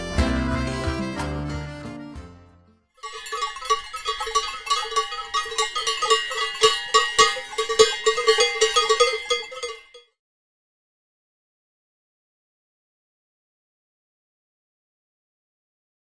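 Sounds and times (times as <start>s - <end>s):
livestock bells clanging: 3.0s - 10.1s.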